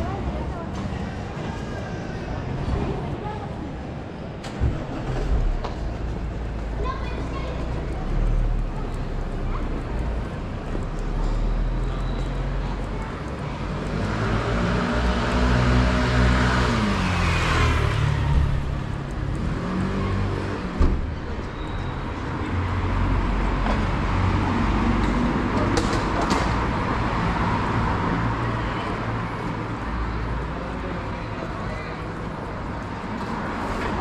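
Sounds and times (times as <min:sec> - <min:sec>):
low rumble of traffic: 0:00.0 - 0:34.0
vehicle passing close by: 0:13.8 - 0:21.2.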